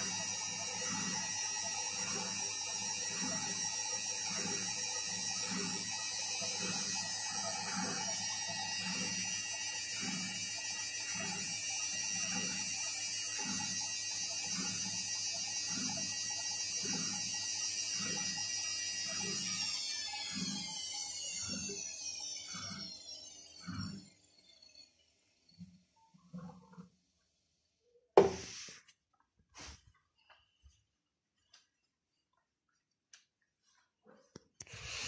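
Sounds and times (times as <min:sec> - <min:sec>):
motor whine: 0:00.0 - 0:26.0.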